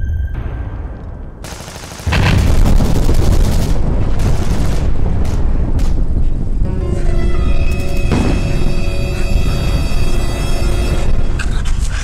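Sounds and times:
explosion blasts: 0:00.4 - 0:06.7, 0:08.0 - 0:09.9
rapid gunfire: 0:01.4 - 0:06.0
deep booming: 0:02.1 - 0:06.8, 0:08.0 - 0:09.6
low rumble: 0:02.1 - 0:12.0.

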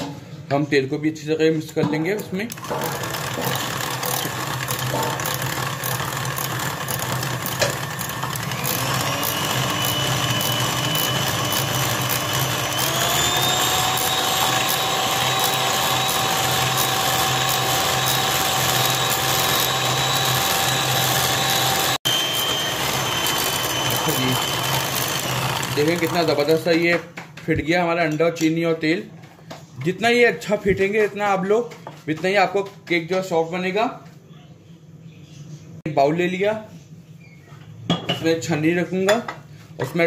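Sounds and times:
beaters whisking batter: 0:01.8 - 0:28.3
electric hand mixer whining: 0:02.5 - 0:26.9.

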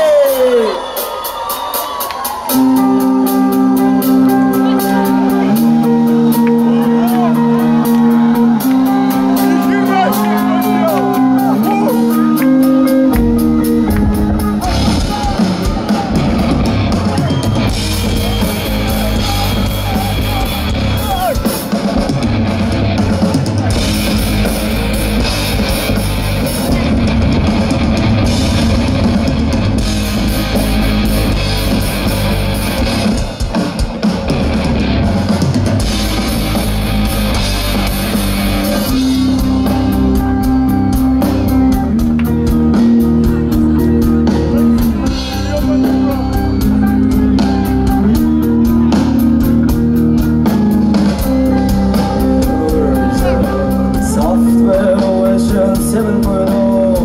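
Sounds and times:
drums: 0:00.0 - 0:57.0
electric guitars: 0:00.0 - 0:57.0
live rock band playing: 0:00.0 - 0:57.0.

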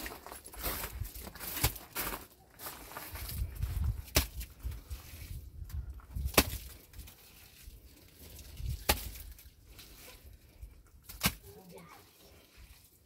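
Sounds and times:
wet mud slapped onto stone wall: 0:04.0 - 0:04.6, 0:06.2 - 0:07.1, 0:08.7 - 0:09.4, 0:11.0 - 0:11.6.

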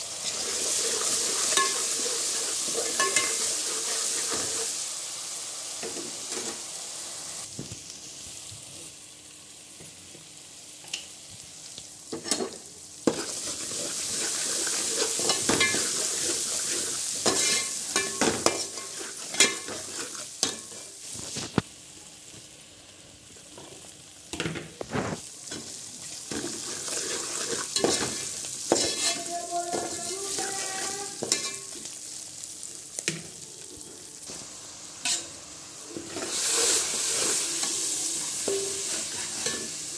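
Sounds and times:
hot oil sizzling in a pot: 0:00.0 - 0:39.9
spatula scraping a pot: 0:00.3 - 0:04.7, 0:13.1 - 0:20.8, 0:26.3 - 0:31.6.

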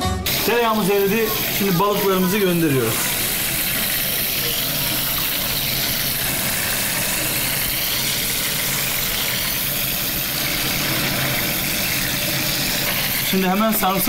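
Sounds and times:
fish sizzling in butter: 0:00.3 - 0:14.0.

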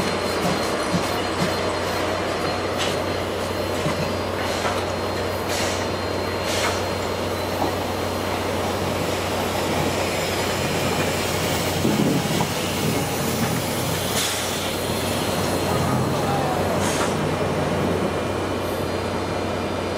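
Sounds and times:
locomotive running gear rumble: 0:00.0 - 0:19.9
steam hisses: 0:04.3 - 0:17.5.

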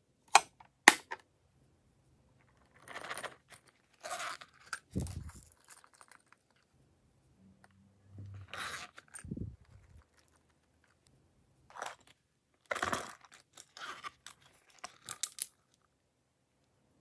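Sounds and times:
plastic coin purses crinkling: 0:02.6 - 0:06.7, 0:11.7 - 0:15.7.

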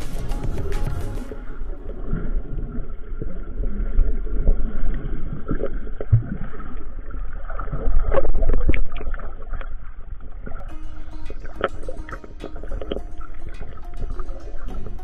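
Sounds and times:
underwater rumble: 0:00.6 - 0:10.7.

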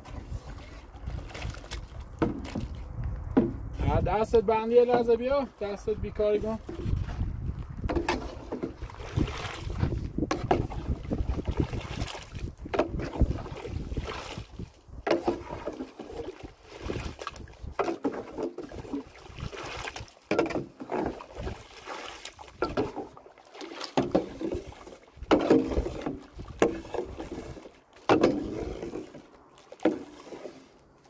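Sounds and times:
shovel mixing wet cement: 0:07.9 - 0:30.8.

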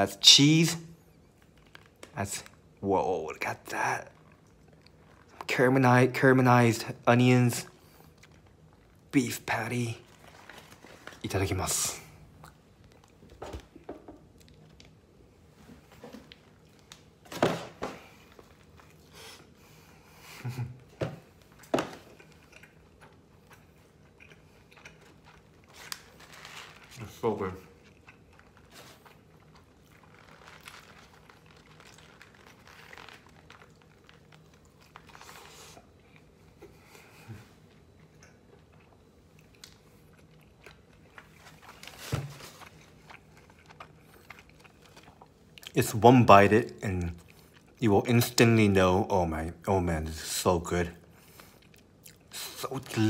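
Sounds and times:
person chewing food: 0:04.1 - 0:05.5, 0:07.8 - 0:09.1, 0:12.2 - 0:15.2, 0:18.1 - 0:45.8, 0:47.0 - 0:47.8, 0:51.0 - 0:52.6
paper wrapper rustling: 0:10.0 - 0:11.6, 0:25.5 - 0:27.4, 0:28.2 - 0:35.7.

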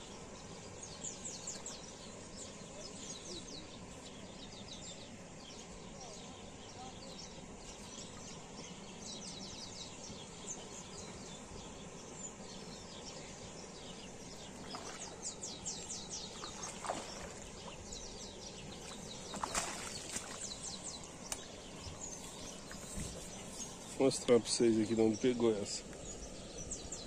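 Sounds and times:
birds chirping: 0:00.0 - 0:27.0
fish splashing in water: 0:14.5 - 0:15.4, 0:16.2 - 0:17.9, 0:18.7 - 0:21.6.

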